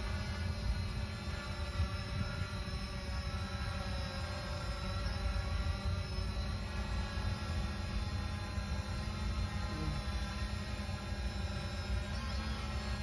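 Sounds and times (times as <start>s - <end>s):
drone propellers buzzing: 0.0s - 13.0s.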